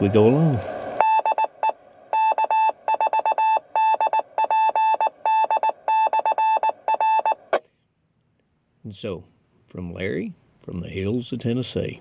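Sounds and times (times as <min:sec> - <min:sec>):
morse code beeps from radio: 0:01.0 - 0:07.4.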